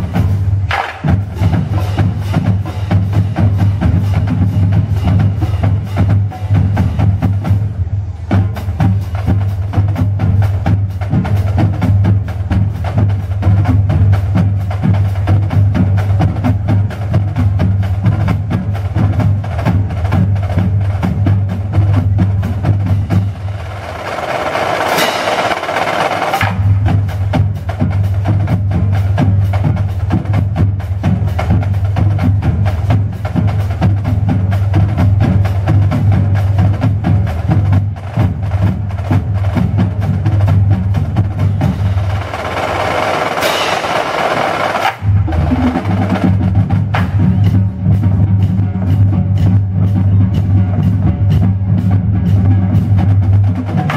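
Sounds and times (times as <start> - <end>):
snare drums playing: 0.0 - 7.7, 8.3 - 53.9
low drum pulse: 26.4 - 42.2, 45.0 - 53.9.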